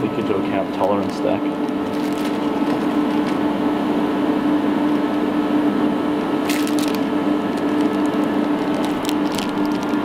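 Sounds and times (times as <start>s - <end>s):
low steady hum: 0.0s - 10.0s
crackling handling noise: 0.8s - 3.5s, 6.4s - 10.0s.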